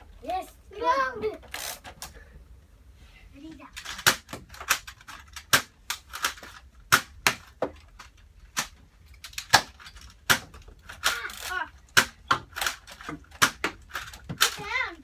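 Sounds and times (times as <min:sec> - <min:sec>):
toy blasters firing foam darts: 0:03.8 - 0:07.7, 0:08.5 - 0:14.9.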